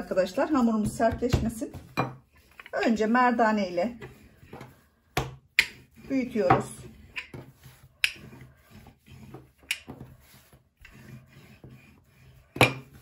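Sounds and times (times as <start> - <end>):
rolling pin rubbing on dough: 0.0 - 13.0.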